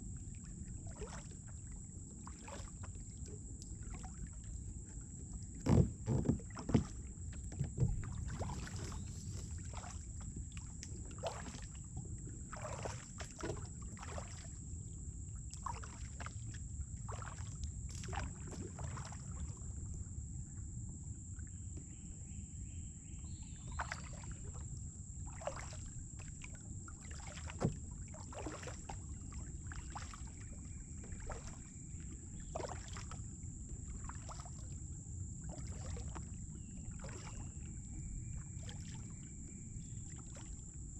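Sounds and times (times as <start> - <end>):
paddle strokes splashing: 0.2 - 14.6, 15.5 - 19.6, 25.3 - 34.8, 35.4 - 39.2.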